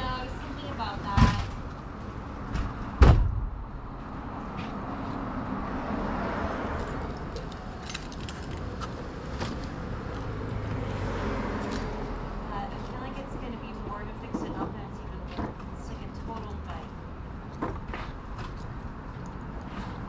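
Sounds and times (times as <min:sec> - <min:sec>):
traffic hum: 0:00.0 - 0:20.0
heavy thump: 0:02.5 - 0:03.6.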